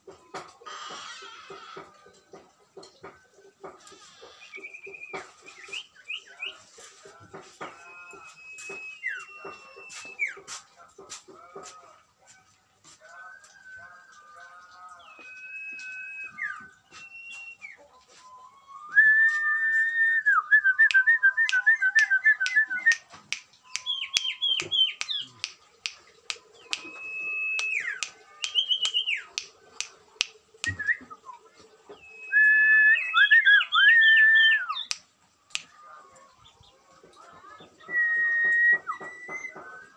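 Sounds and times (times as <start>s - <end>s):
songbirds singing: 0.0s - 39.9s
sharp bird ticks: 20.9s - 30.8s, 34.7s - 35.7s.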